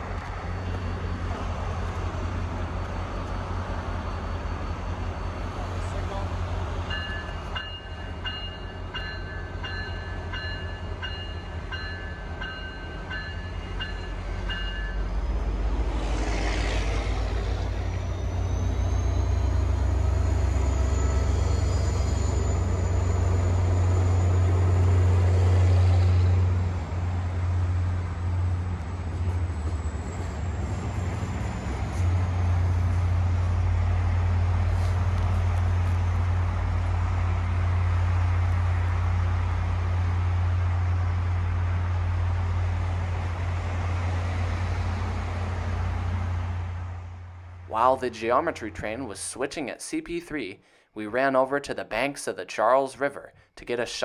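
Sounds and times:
high squeal of train: 0.0s - 41.5s
diesel locomotive engine drone: 0.0s - 49.5s
locomotive bell ringing: 2.6s - 15.4s.

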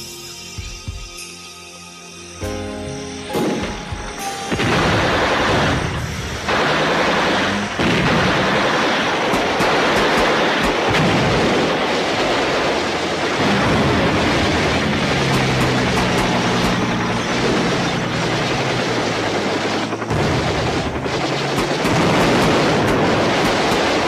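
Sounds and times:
explosions: 3.3s - 24.0s
gunfire: 4.5s - 24.0s.

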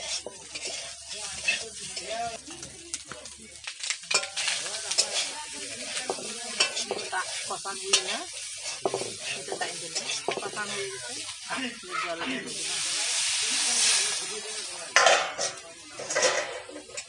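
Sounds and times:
metal spatula scraping pan: 0.0s - 2.4s, 4.1s - 11.5s, 15.0s - 17.0s
frying sizzle: 0.0s - 17.0s
spatula clinking against pan: 6.0s - 7.1s.

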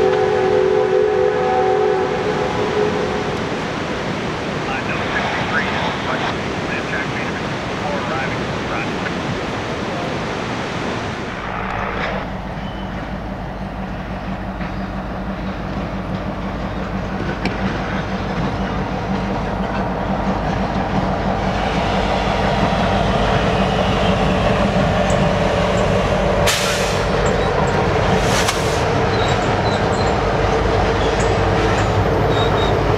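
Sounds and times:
diesel locomotive engine humming: 0.0s - 32.9s
train wheels clattering over rails: 13.8s - 32.9s.

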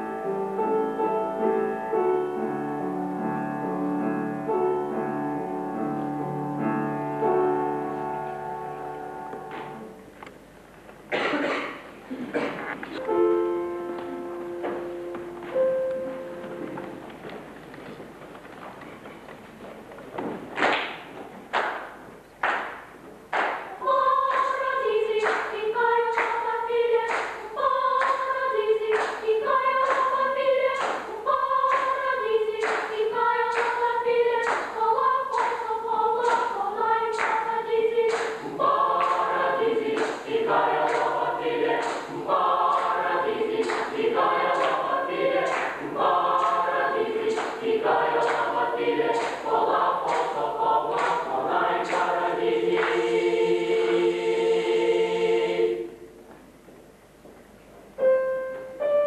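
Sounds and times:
hand claps on steady beat: 20.6s - 23.7s, 26.2s - 26.4s, 27.1s - 27.4s, 28.9s - 29.2s, 30.8s - 31.1s, 32.6s - 33.8s, 34.4s - 34.7s, 37.2s - 37.4s, 38.1s - 39.2s, 39.8s - 40.3s, 40.9s - 41.1s, 41.8s - 45.8s, 46.4s - 51.3s
boys' choir singing a cappella: 23.7s - 56.1s.

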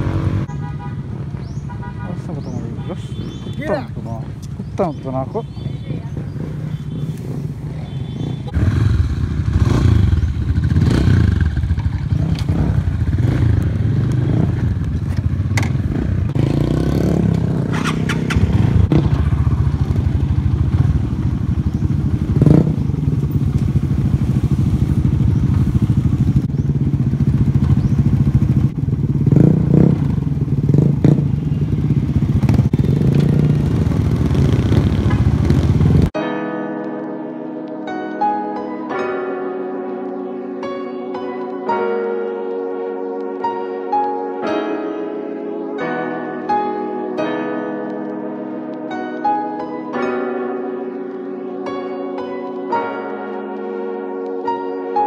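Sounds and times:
motorcycle engine running: 0.0s - 36.2s.

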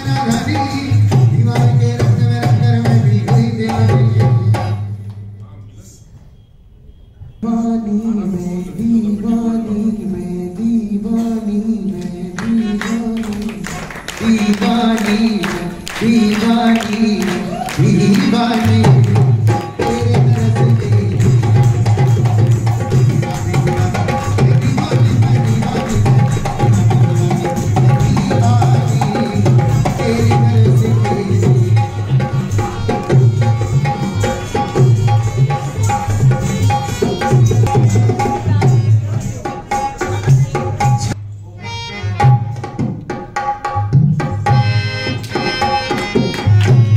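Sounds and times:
drum strikes: 14.2s - 41.2s.

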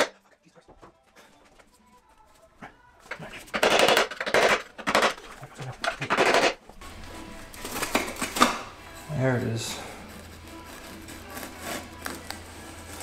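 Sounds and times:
hand tool clattering: 3.4s - 6.6s.

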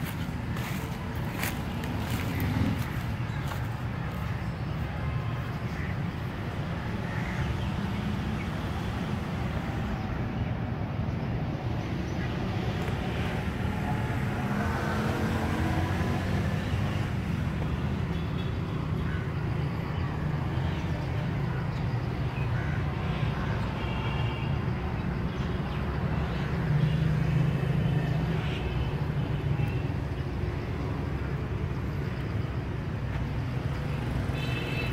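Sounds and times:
passing engine: 0.0s - 7.0s, 12.4s - 18.1s
background traffic rumble: 0.0s - 34.9s.

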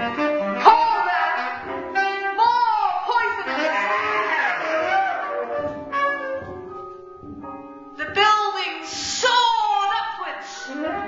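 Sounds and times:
saxophones playing held notes: 0.0s - 6.7s.

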